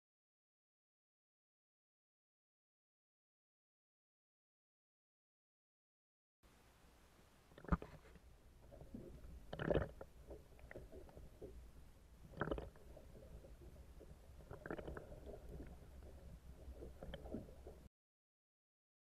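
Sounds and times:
muffled underwater rumble: 6.5s - 17.9s
water gurgles and thuds: 7.5s - 17.9s.

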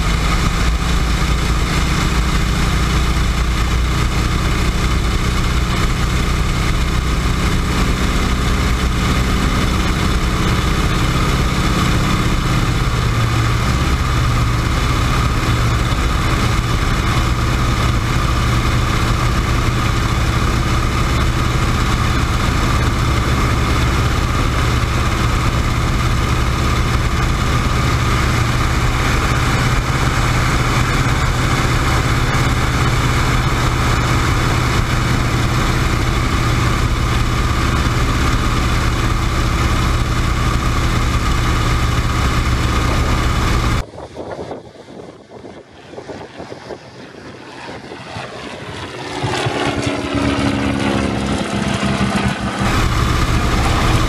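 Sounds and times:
propeller plane engine running: 0.0s - 54.0s
wind rushing: 42.0s - 54.0s.

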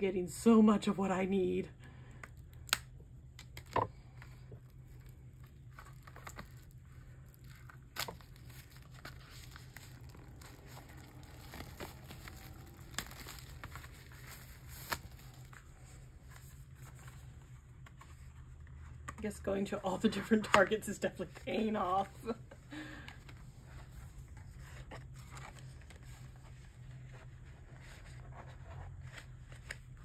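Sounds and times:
low steady hum: 0.0s - 30.0s
paper and plastic rustling: 3.4s - 19.2s.

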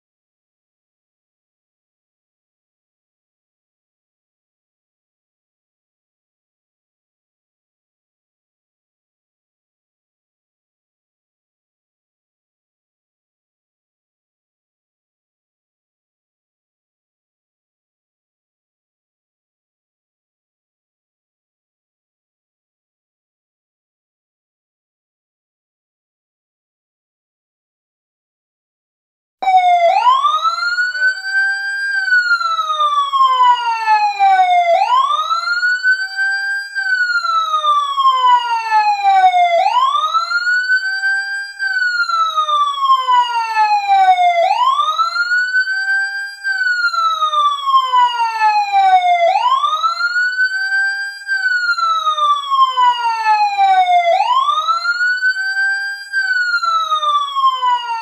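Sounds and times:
fire truck siren wailing: 29.4s - 58.0s.

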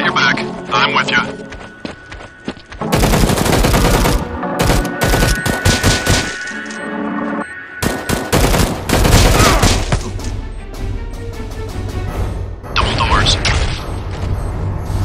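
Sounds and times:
automatic gunfire: 2.9s - 6.3s, 7.8s - 9.8s.

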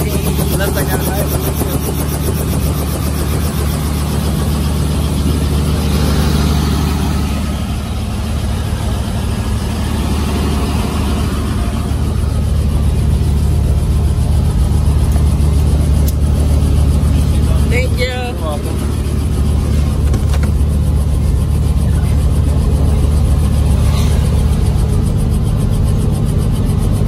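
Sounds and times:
helicopter engine and rotor: 0.0s - 27.0s.

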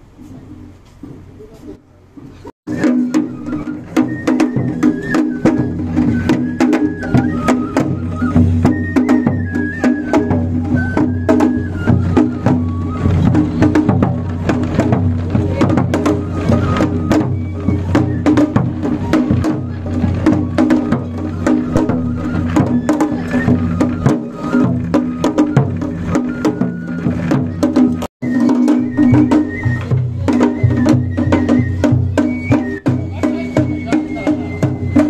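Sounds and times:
sharp clacking percussion: 2.7s - 35.0s
taiko drum struck in fast rhythm: 2.7s - 35.0s.

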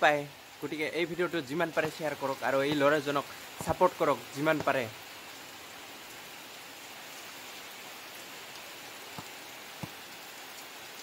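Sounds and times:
steady rain falling: 0.0s - 11.0s.

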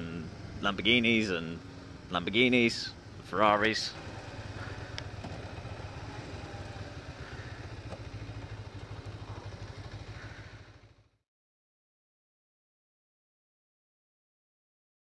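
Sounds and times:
motorcycle engine running: 0.0s - 11.2s.

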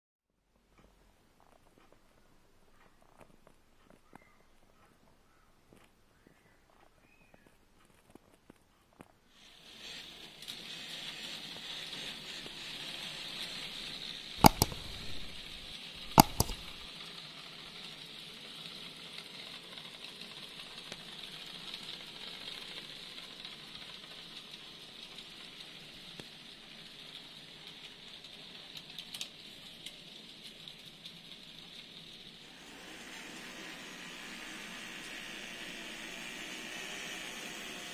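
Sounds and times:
model train running on track: 9.4s - 14.6s, 16.9s - 37.9s
sharp double clicks: 14.4s - 16.9s.

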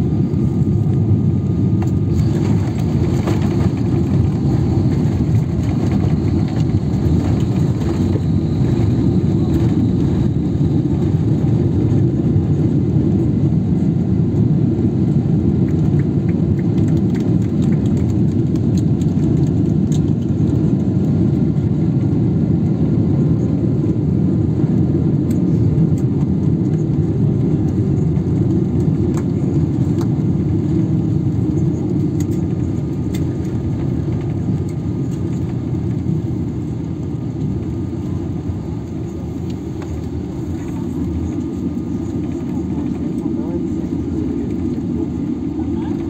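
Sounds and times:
deep rumble of engines and wheels: 0.0s - 46.0s.

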